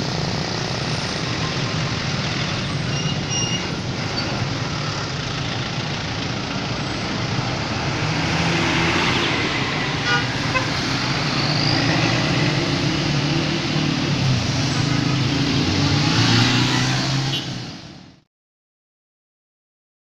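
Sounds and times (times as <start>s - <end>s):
bus diesel engine running: 0.0s - 16.0s
motorbikes and cars passing: 0.0s - 18.2s.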